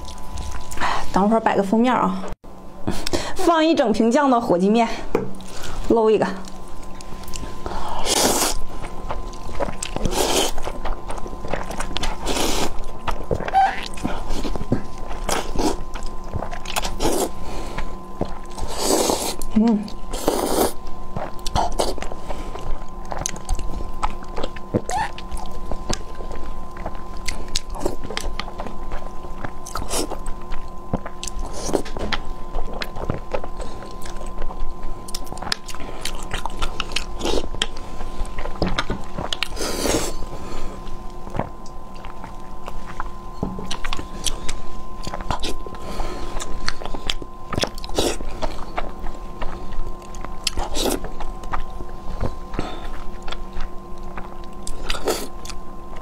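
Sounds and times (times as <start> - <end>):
faint steady hum: 0.0 - 56.0
chewing and wet mouth smacks: 20.7 - 39.6, 41.3 - 56.0.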